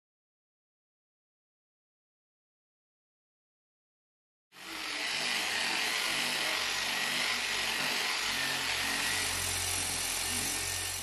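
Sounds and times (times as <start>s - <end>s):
angle grinder motor hum: 4.6s - 11.0s.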